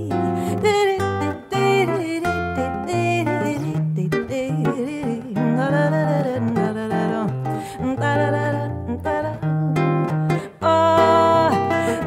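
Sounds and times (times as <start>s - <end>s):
solo guitar samba: 0.0s - 12.0s.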